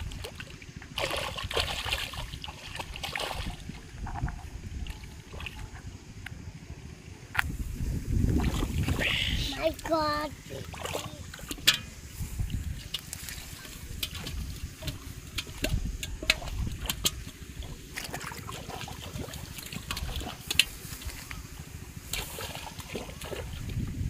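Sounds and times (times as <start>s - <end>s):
bare feet splashing in water: 0.0s - 4.2s, 10.5s - 11.8s, 12.4s - 23.8s
metal pot moved through water: 10.7s - 21.3s.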